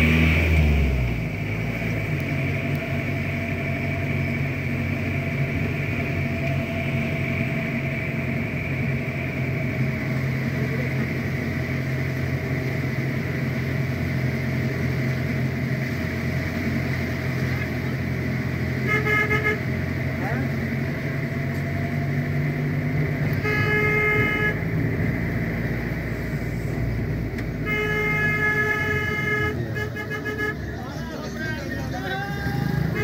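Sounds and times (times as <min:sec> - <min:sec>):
road noise: 0:00.0 - 0:33.0
vehicle engine running: 0:00.0 - 0:33.0.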